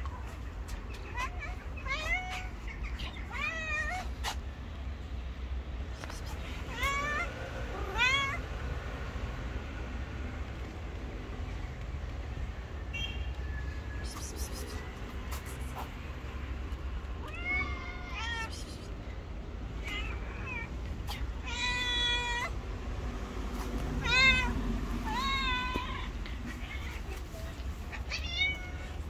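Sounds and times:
cat meowing: 0:01.0 - 0:04.4, 0:06.1 - 0:08.4, 0:17.2 - 0:18.9, 0:19.8 - 0:22.6, 0:24.0 - 0:29.0.

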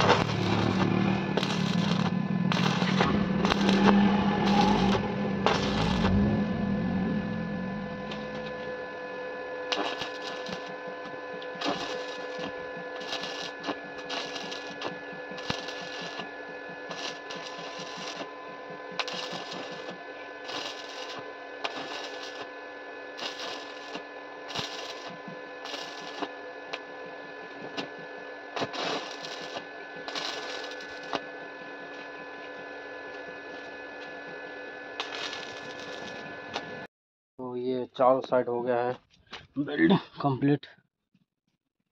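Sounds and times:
welding arc crackling and sizzling: 0:00.0 - 0:08.9, 0:09.7 - 0:26.9, 0:27.5 - 0:36.9
steady hum: 0:00.0 - 0:36.9.

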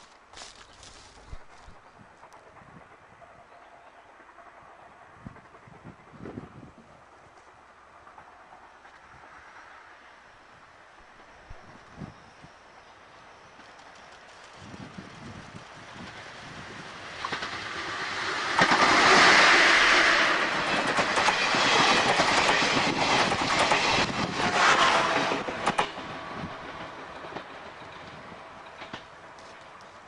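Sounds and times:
electric locomotive passing: 0:00.4 - 0:30.0
train wheels clacking over rail joints: 0:17.1 - 0:30.0.

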